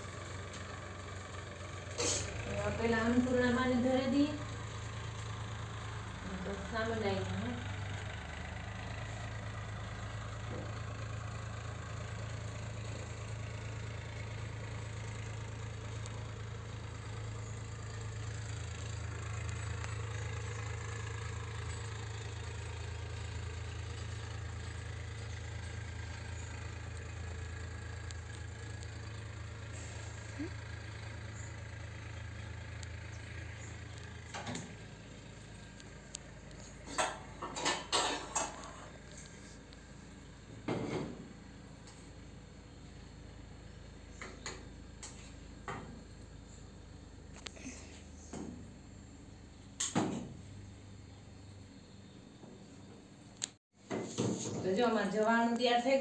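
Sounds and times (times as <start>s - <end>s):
low mechanical hum: 0.0s - 56.0s.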